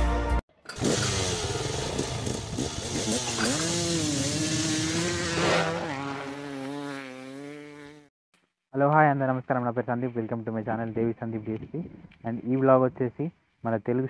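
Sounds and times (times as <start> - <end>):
motorcycle engine revving: 0.6 - 8.1.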